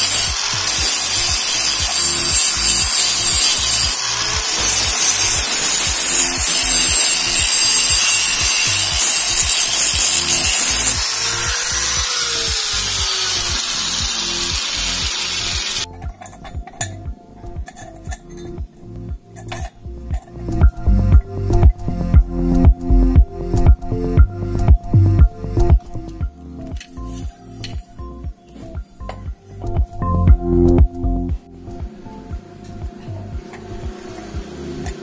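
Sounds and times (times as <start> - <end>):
angle grinder grinding metal: 0.0 - 17.0, 31.6 - 35.0
background music with beat: 0.0 - 35.0.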